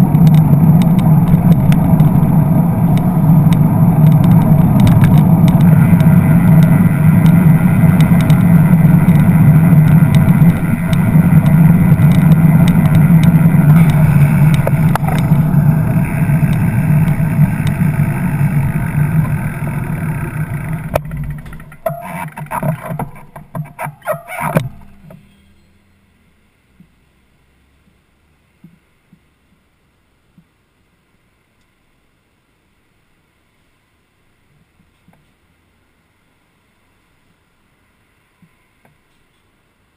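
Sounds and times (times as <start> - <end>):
road rumble: 0.0 - 30.9.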